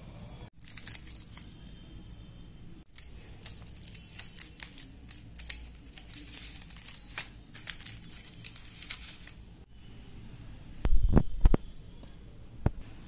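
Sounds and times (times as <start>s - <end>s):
foil wrapper crinkling and tearing: 0.6s - 1.7s, 2.9s - 9.4s.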